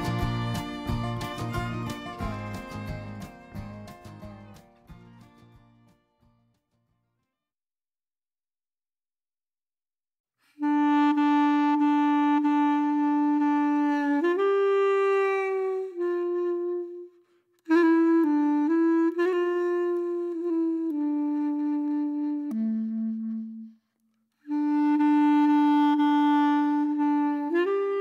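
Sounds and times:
solo melody of held notes: 0.0s - 5.2s.

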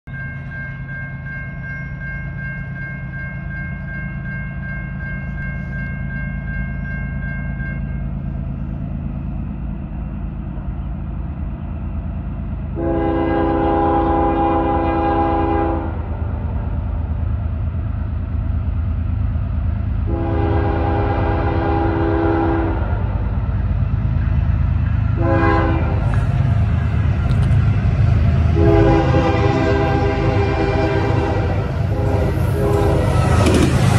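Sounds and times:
high ringing tone: 0.1s - 9.0s
locomotive engine rumble: 0.1s - 33.9s
train horn blasts: 12.7s - 16.7s, 20.0s - 23.3s, 25.1s - 26.3s, 28.5s - 33.9s.

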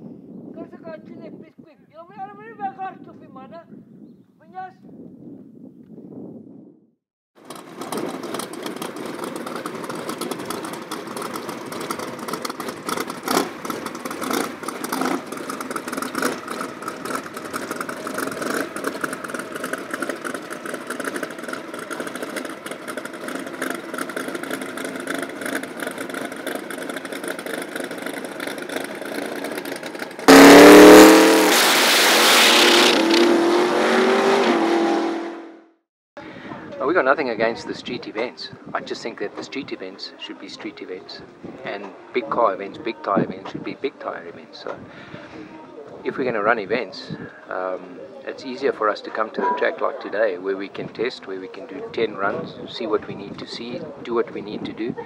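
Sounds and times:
race car engine idling: 7.4s - 30.6s
race car launching at full throttle: 7.4s - 35.6s
race car engine revving: 7.4s - 35.7s.

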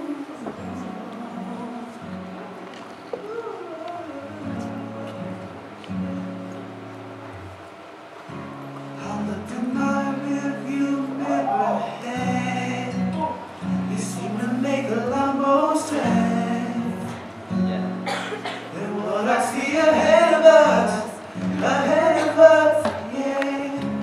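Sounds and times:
man singing into microphone: 0.0s - 2.4s, 3.2s - 5.6s, 9.0s - 17.4s, 18.6s - 24.0s.

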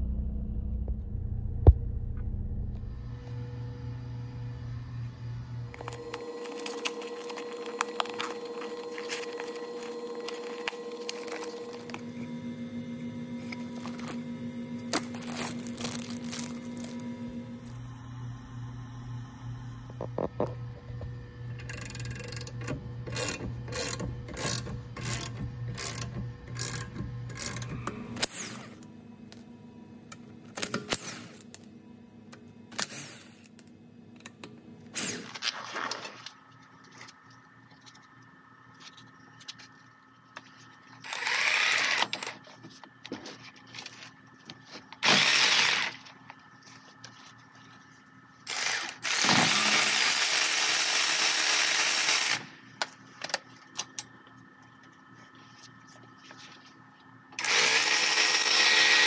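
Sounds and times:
power wrench spinning: 21.6s - 28.5s, 41.0s - 42.4s, 45.0s - 46.1s, 48.5s - 52.5s, 57.4s - 59.0s.

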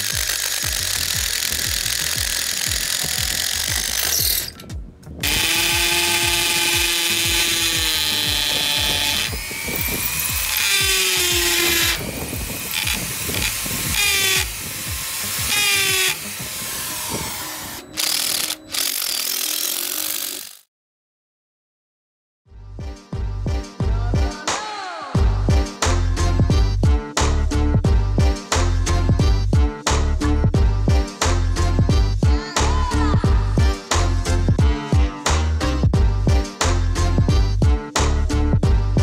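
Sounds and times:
hammer drill running: 0.0s - 4.6s, 5.2s - 20.6s
impact driver running: 0.0s - 4.6s, 5.2s - 20.6s
background music: 0.0s - 20.6s, 22.5s - 39.0s.

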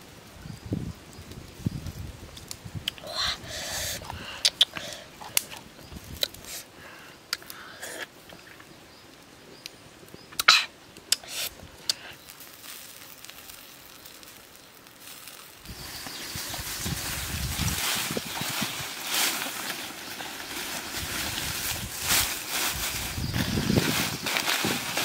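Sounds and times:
person eating: 2.9s - 6.6s.

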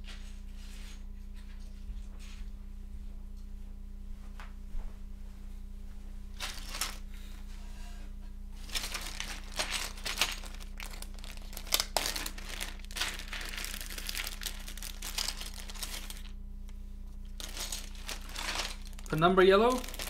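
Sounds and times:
plastic bags crinkling: 6.4s - 7.1s, 8.6s - 16.4s, 17.2s - 20.0s.

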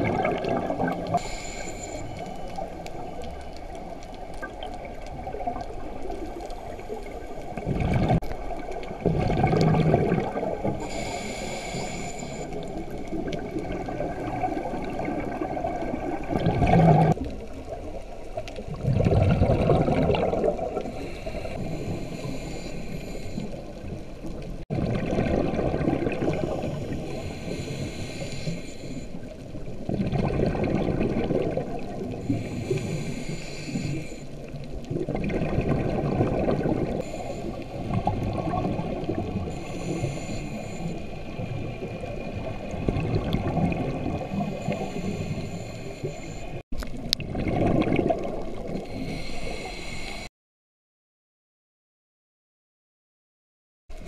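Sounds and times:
gurgling exhaled bubbles: 0.0s - 1.5s, 2.3s - 11.8s, 12.8s - 22.2s, 24.7s - 28.1s, 29.6s - 33.1s, 34.6s - 40.1s, 41.2s - 45.3s, 46.8s - 49.2s
regulator hissing inhales: 1.2s - 3.0s, 10.8s - 12.9s, 20.9s - 23.7s, 26.4s - 29.3s, 32.2s - 34.4s, 37.0s - 37.8s, 39.5s - 41.2s, 44.5s - 46.6s, 48.9s - 50.3s.

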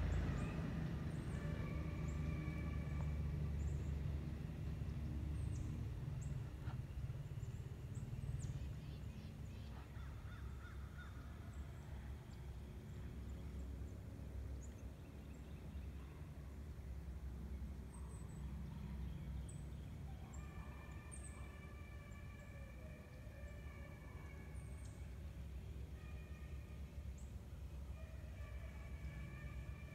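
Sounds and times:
distant drawn-out animal call: 0.0s - 4.1s, 5.4s - 12.2s, 20.0s - 29.9s
low steady rumble: 0.0s - 29.9s.

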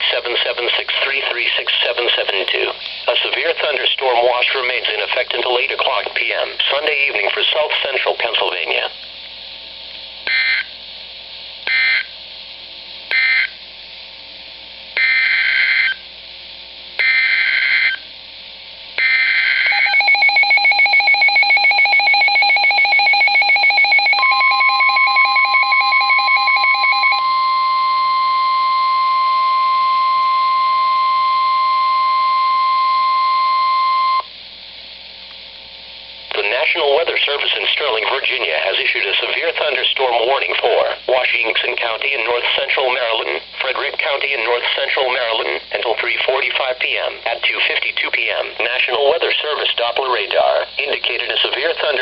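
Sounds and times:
steady warning alarm tone: 10.3s - 10.7s, 11.7s - 12.2s, 13.1s - 13.6s, 15.0s - 16.0s, 17.0s - 18.1s, 19.0s - 34.3s
rapid pulsing alert beep: 19.7s - 27.2s.

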